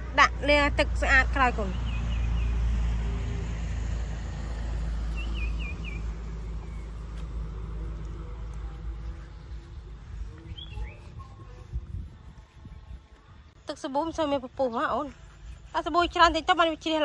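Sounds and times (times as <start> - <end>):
low motor rumble: 0.0 - 13.6
small bird chirping: 5.1 - 7.2, 9.1 - 11.6.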